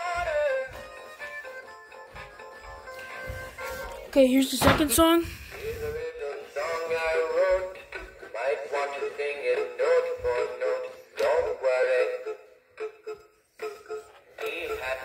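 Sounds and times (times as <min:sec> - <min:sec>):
toy voice singing over music: 0:05.6 - 0:15.0.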